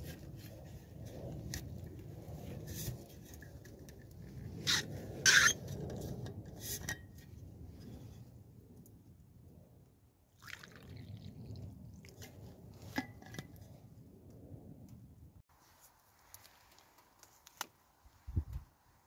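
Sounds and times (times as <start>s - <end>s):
hot drink pouring into metal cup: 10.4s - 11.7s.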